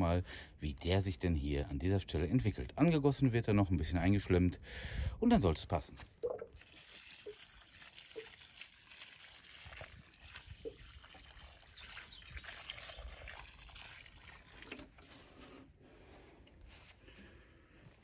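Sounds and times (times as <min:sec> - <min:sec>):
water trickling onto soil: 0:06.0 - 0:15.5.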